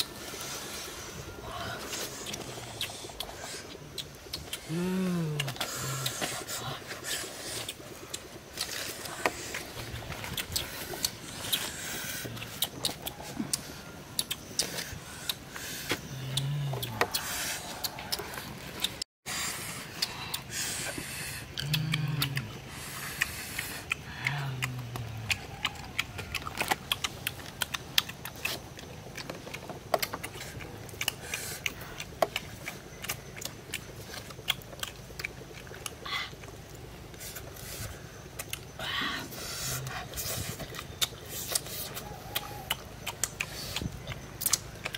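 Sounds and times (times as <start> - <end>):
people humming mmm: 0.1 - 7.9, 9.0 - 26.6, 37.2 - 44.6
smacking and chewing: 1.8 - 19.0, 19.9 - 44.9.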